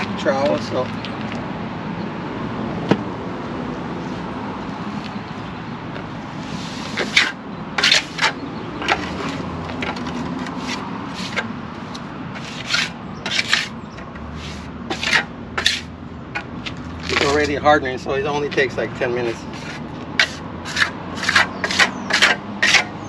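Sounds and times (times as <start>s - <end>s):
tool scraping concrete: 6.5s - 11.5s, 12.4s - 13.8s, 14.4s - 17.7s, 18.4s - 23.0s.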